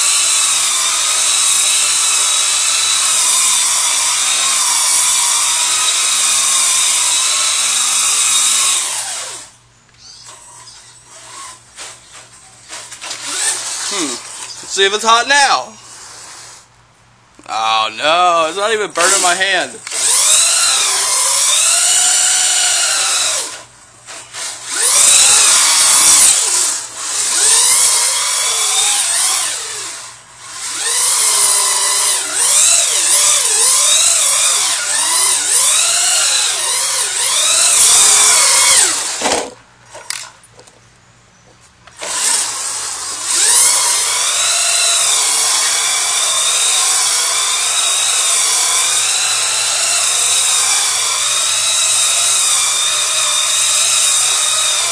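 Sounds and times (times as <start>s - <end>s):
electric motor whining: 13.0s - 15.0s, 24.3s - 39.5s, 42.0s - 54.9s.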